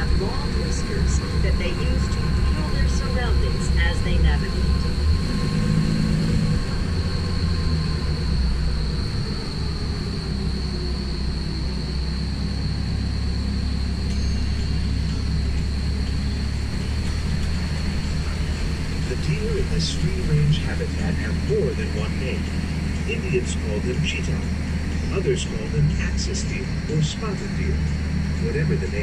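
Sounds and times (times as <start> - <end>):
tram rumbling: 0.0 - 29.0
thin high tone: 13.4 - 22.4.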